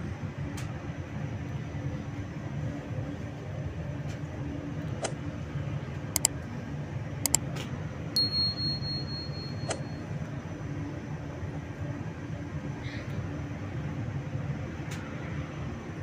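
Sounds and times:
high beep: 0:08.2 - 0:10.0
machinery humming: 0:08.2 - 0:12.3.

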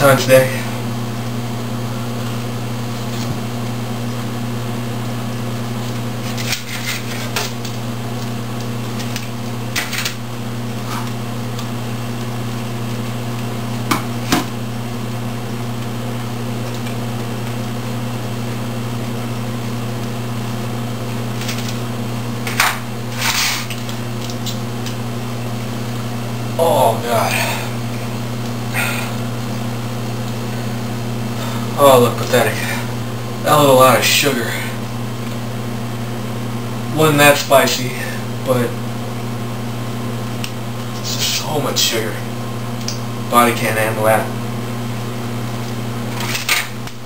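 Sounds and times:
low mechanical hum: 0:00.0 - 0:47.0.

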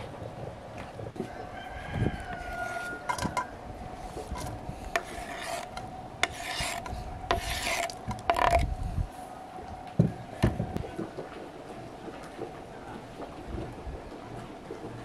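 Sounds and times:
knife scraping wooden board: 0:02.4 - 0:03.4, 0:04.0 - 0:08.7.

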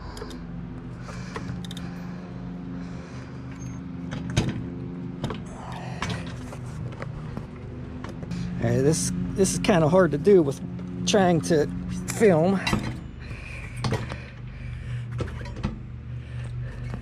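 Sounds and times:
steady low hum: 0:00.0 - 0:17.0
bicycle chain clicking: 0:01.1 - 0:01.9.

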